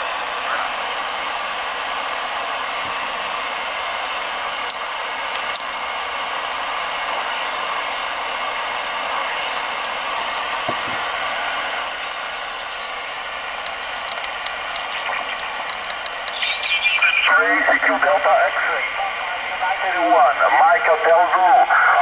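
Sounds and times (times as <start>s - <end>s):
sharp clicks: 4.7s - 5.7s, 13.6s - 17.3s
radio receiver hiss: 9.8s - 11.6s, 12.2s - 19.1s.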